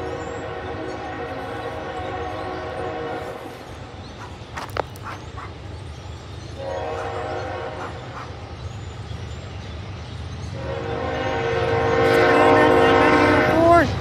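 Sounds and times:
locomotive air horn blasts: 0:00.0 - 0:03.7, 0:06.6 - 0:07.9, 0:10.6 - 0:13.9
low rumble of train: 0:00.0 - 0:14.0.

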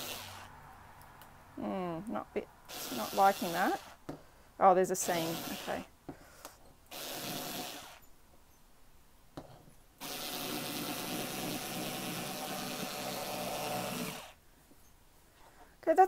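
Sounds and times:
electric cutter whining through fabric: 0:00.0 - 0:00.5, 0:05.0 - 0:05.9, 0:06.9 - 0:08.0, 0:10.0 - 0:14.4.

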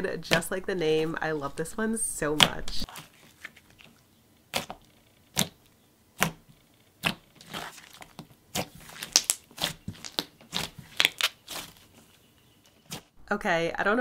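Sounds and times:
slime crackling pops and squishes: 0:04.5 - 0:05.6, 0:06.2 - 0:11.8.

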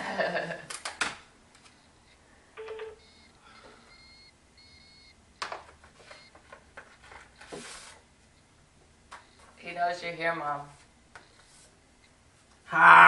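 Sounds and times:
phone beeping: 0:01.7 - 0:06.4, 0:09.1 - 0:09.6.

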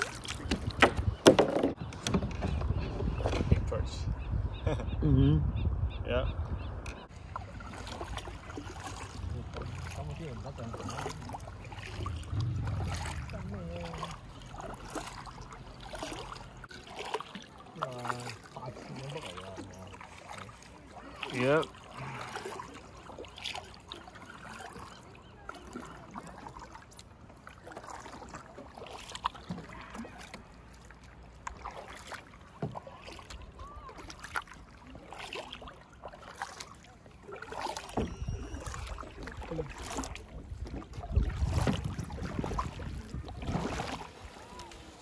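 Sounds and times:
paddle splashes and drips: 0:00.0 - 0:03.7, 0:06.8 - 0:45.0
low rumble: 0:11.4 - 0:15.5.

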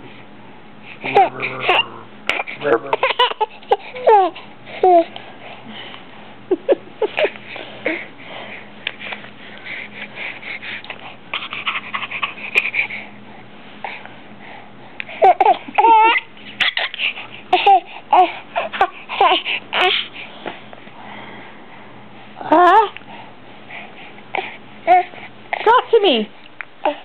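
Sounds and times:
baby babbling: 0:01.0 - 0:05.1, 0:15.2 - 0:20.1
baby squealing: 0:01.1 - 0:04.4, 0:15.3 - 0:17.0.

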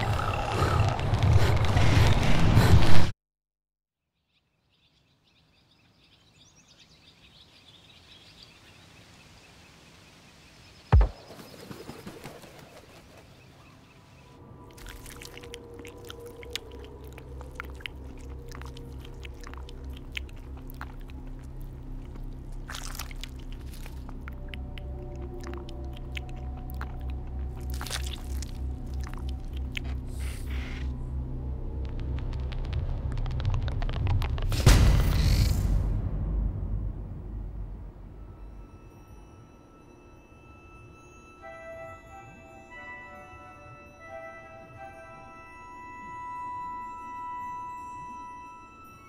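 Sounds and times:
loud low thump: 0:11.0 - 0:11.2, 0:34.5 - 0:38.2
low pulsing drone: 0:14.3 - 0:49.0
small clicks and crackles: 0:31.8 - 0:34.6.

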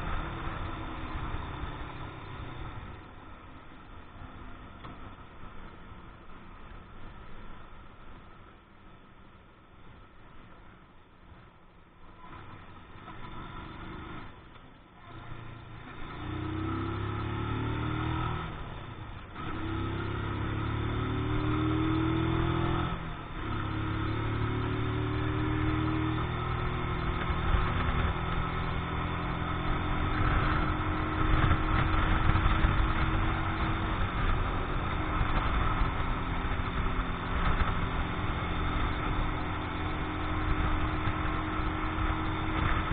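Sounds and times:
motorcycle engine accelerating: 0:00.0 - 0:05.0, 0:12.2 - 0:42.9.

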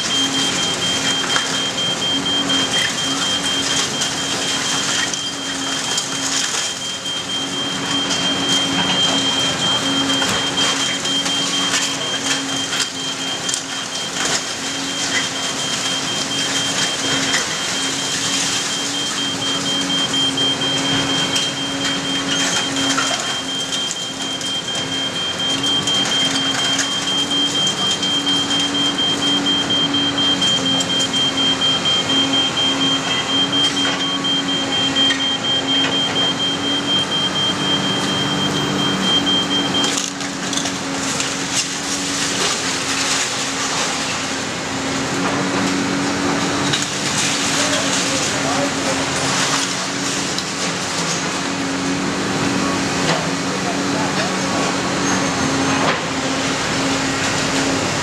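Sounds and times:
demolition debris crunching and tearing: 0:00.0 - 0:58.0
excavator engine running: 0:00.0 - 0:58.0
high rapidly pulsing beep: 0:14.9 - 0:39.9.

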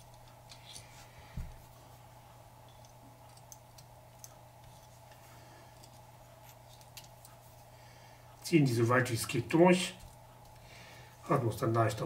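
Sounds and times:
faint steady hum: 0:00.0 - 0:12.0
small clicks of wires and tweezers: 0:02.7 - 0:07.4.

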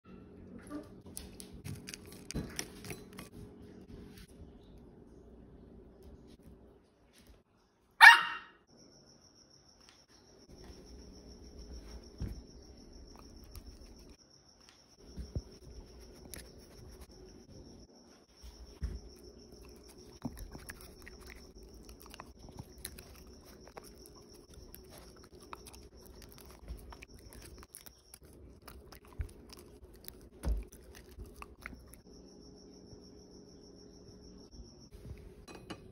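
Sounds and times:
dog chewing treats: 0:19.5 - 0:32.0.

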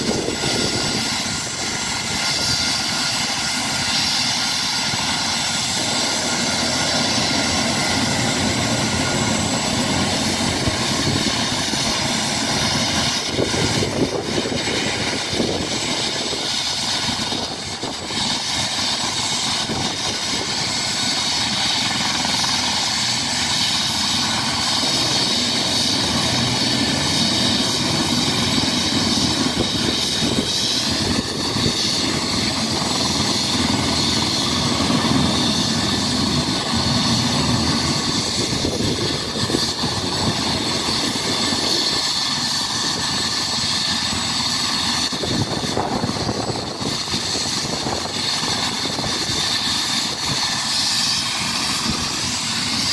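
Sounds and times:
helicopter rotor beat: 0:00.0 - 0:52.9
helicopter turbine whine: 0:00.0 - 0:52.9.

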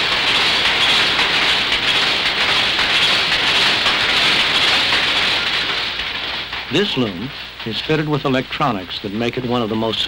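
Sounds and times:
power loom clattering: 0:00.0 - 0:10.0.

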